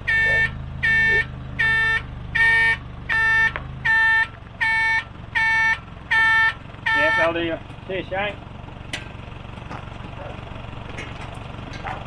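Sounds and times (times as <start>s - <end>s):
truck reversing alarm beeping: 0.0s - 7.5s
truck engine idling: 0.0s - 12.0s.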